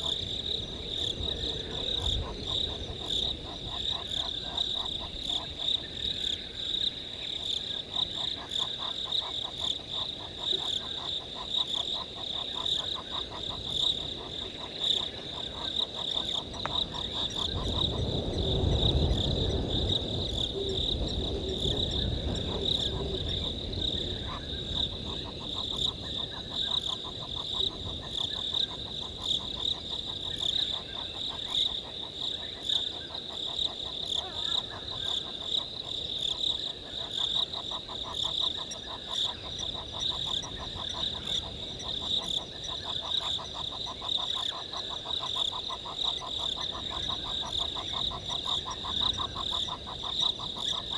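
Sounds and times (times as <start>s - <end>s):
pulsed frog calls: 0.0s - 6.8s, 20.3s - 50.9s.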